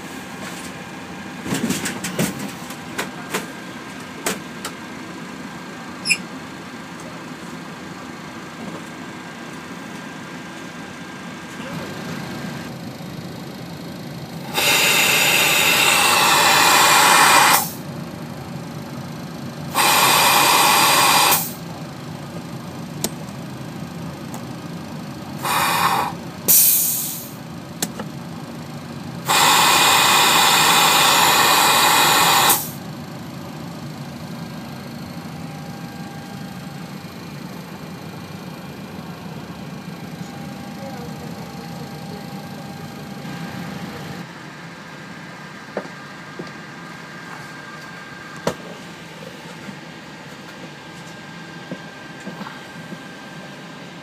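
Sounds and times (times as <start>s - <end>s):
low cockpit hum: 11.6s - 44.3s
oxygen hissing through mask: 14.4s - 17.8s, 19.7s - 21.6s, 25.4s - 27.3s, 29.2s - 32.8s.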